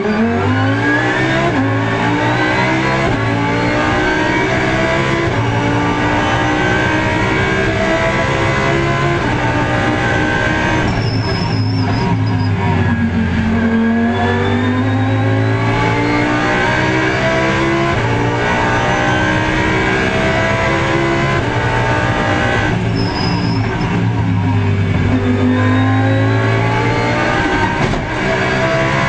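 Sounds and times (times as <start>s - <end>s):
race car engine at high revs: 0.0s - 29.0s
high-pitched squeal: 5.9s - 27.8s.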